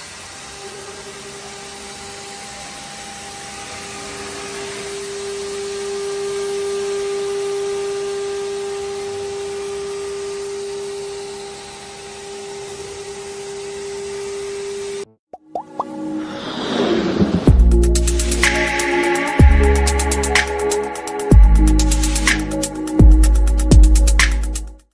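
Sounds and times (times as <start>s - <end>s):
router spindle high-pitched whine: 0.0s - 15.1s.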